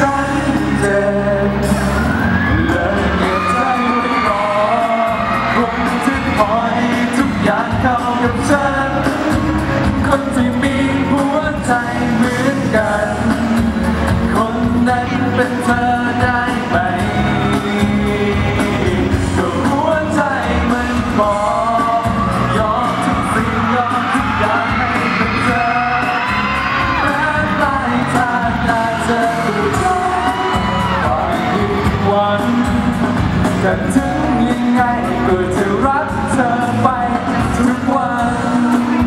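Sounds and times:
man singing into microphone: 0.0s - 39.0s
pop backing music: 0.0s - 39.0s
audience yelling: 1.6s - 9.7s, 21.2s - 34.6s.

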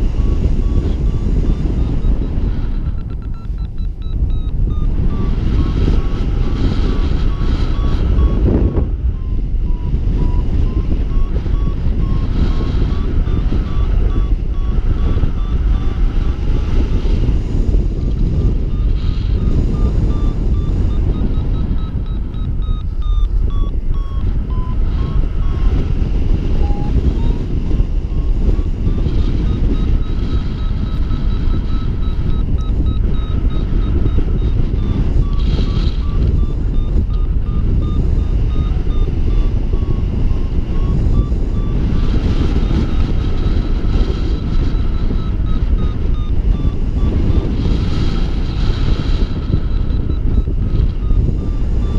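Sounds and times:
variometer beeping rapidly: 0.0s - 51.9s
wind rushing over microphone: 0.0s - 51.9s.

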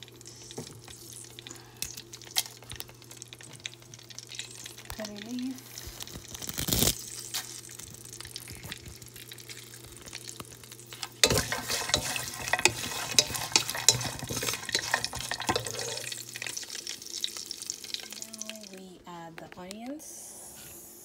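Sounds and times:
spices sizzling in ghee: 0.0s - 18.9s
spoon stirring and scraping pot: 11.0s - 16.7s.

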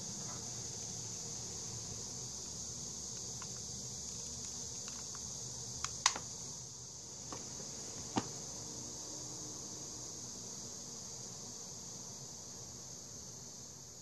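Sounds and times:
hot glue gun clicks and taps: 5.8s - 6.2s.

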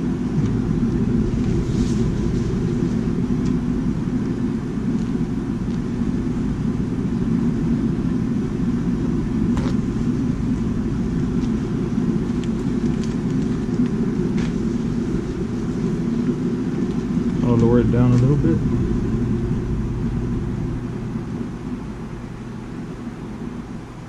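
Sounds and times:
propane burner flame rushing: 0.0s - 24.0s.

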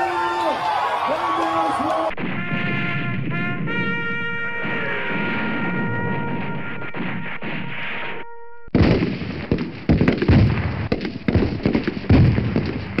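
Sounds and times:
rapid loud bangs and blasts: 2.1s - 13.0s
held brass chord: 2.2s - 8.7s.

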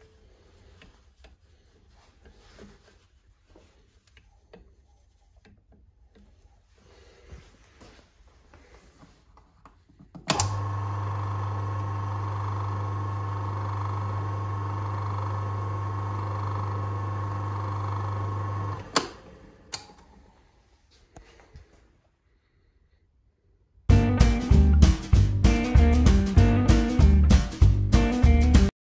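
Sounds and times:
lathe motor humming and whining: 10.4s - 19.7s.

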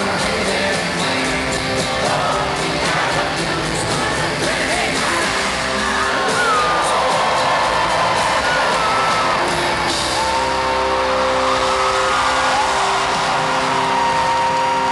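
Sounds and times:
live band music: 0.0s - 14.9s
crowd cheering and whooping: 4.8s - 14.9s.

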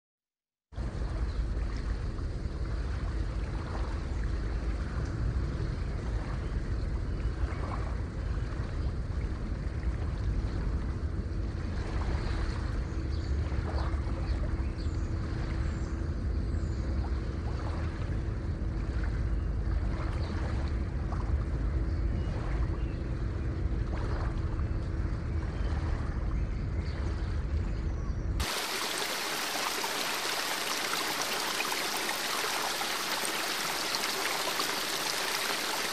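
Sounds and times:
fast stream babbling: 28.4s - 35.9s
heavy rushing water: 28.4s - 35.9s.

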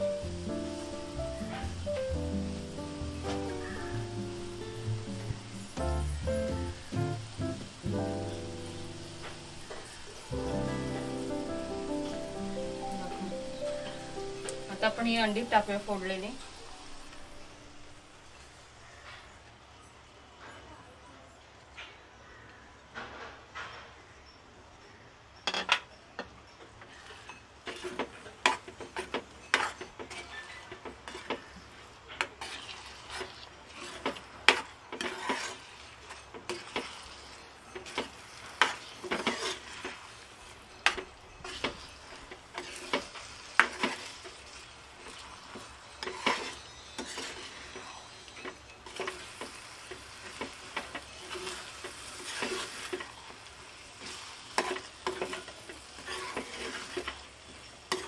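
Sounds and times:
frying sizzle: 0.0s - 20.2s, 25.4s - 58.0s
spoon scraping a frying pan: 26.8s - 58.0s.

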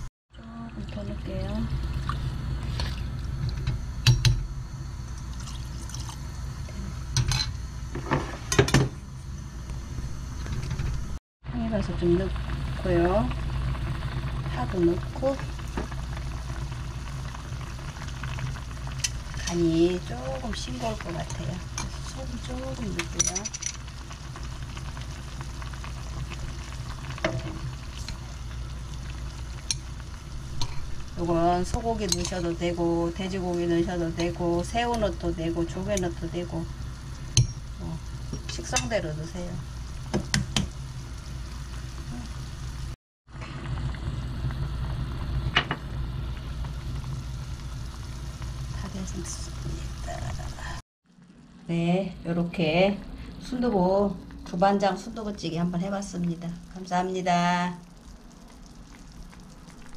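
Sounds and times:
stew bubbling in a pot: 0.3s - 11.0s, 11.6s - 51.5s, 53.6s - 59.9s
liquid sloshing: 1.8s - 3.6s.

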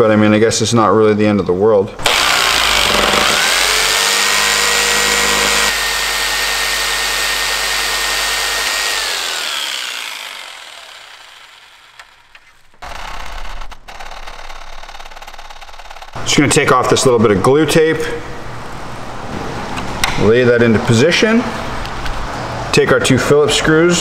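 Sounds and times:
rotary tool cutting plastic: 2.0s - 16.2s.

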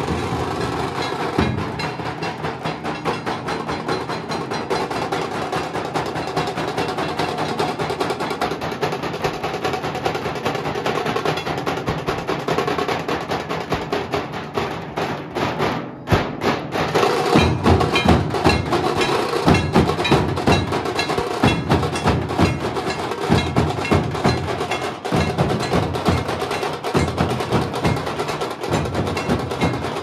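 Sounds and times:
drum troupe playing fast rhythm: 0.0s - 30.0s.

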